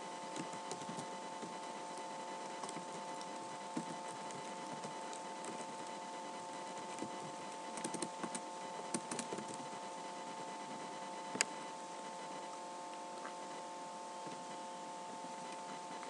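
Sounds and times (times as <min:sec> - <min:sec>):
steady hum: 0:00.0 - 0:16.0
keyboard keys clicking: 0:00.3 - 0:01.1, 0:06.9 - 0:09.6.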